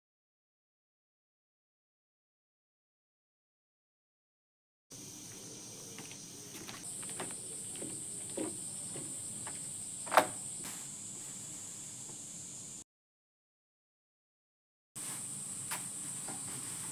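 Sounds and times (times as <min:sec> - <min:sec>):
cicadas droning: 0:04.9 - 0:12.8, 0:15.0 - 0:16.9
sandal footsteps on wooden deck: 0:05.2 - 0:11.4.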